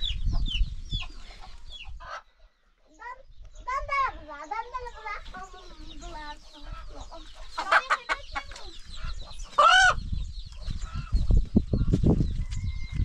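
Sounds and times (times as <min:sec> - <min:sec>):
chickens clucking: 0:00.0 - 0:13.0
chicken squawking: 0:01.7 - 0:02.3, 0:06.6 - 0:10.0.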